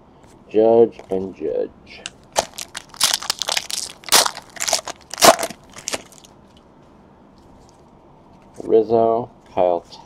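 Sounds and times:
foil wrapper crinkling and tearing: 0:02.4 - 0:06.3.

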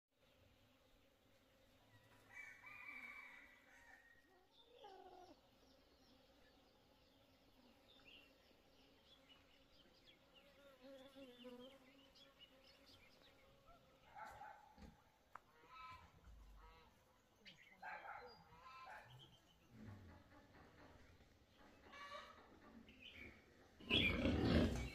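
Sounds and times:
faint rooster crowing: 0:01.8 - 0:05.4
small birds chirping: 0:04.4 - 0:19.9, 0:21.0 - 0:24.9.

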